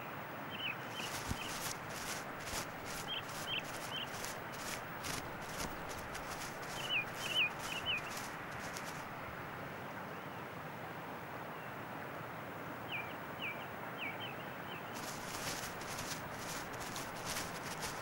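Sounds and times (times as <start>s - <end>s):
outdoor hiss: 0.0s - 10.0s, 14.8s - 18.0s
small bird chirping: 0.5s - 9.1s, 14.0s - 18.0s
hare footfalls on turf: 0.9s - 9.1s, 15.0s - 18.0s.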